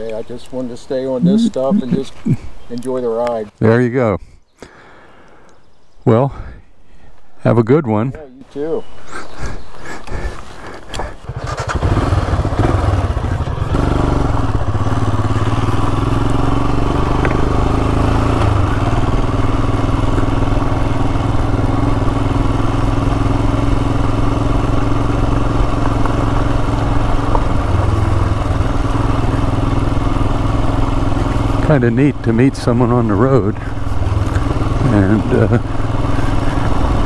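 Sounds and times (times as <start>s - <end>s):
motorcycle engine pulling away: 11.0s - 37.0s.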